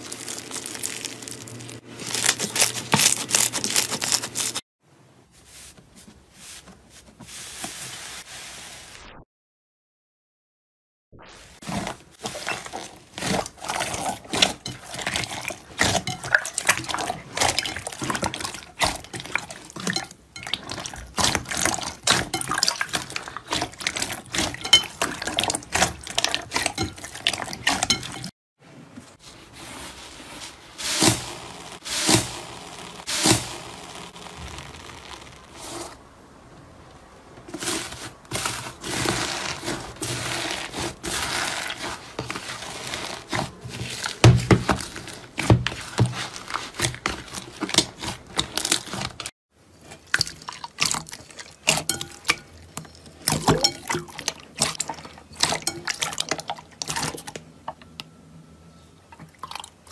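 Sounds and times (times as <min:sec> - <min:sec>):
foam bead slime crackling: 0:00.0 - 0:04.6, 0:29.6 - 0:36.0, 0:37.5 - 0:49.3.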